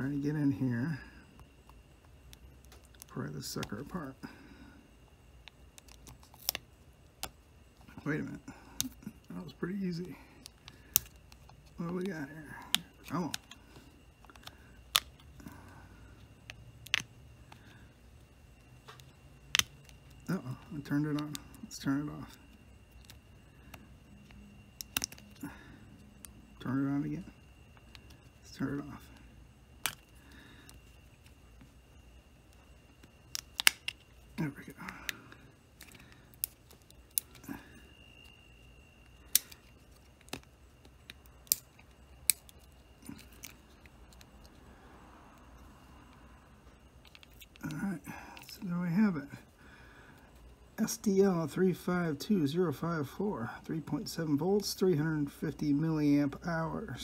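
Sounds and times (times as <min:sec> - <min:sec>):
faint low steady hum: 0:00.0 - 0:57.0
plastic clicks and snaps: 0:18.8 - 0:20.2, 0:22.9 - 0:25.4, 0:33.0 - 0:34.0, 0:39.2 - 0:44.5.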